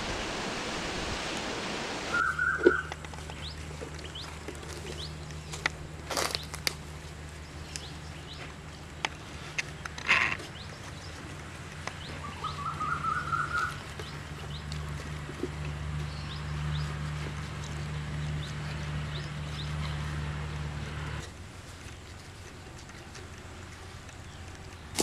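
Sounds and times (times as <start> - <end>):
rushing hiss: 0.0 - 2.2
small birds chirping: 2.1 - 5.6, 7.3 - 20.1.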